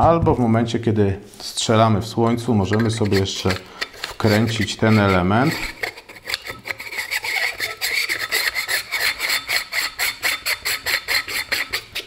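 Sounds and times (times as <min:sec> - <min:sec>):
threads rasping: 0:02.4 - 0:12.0.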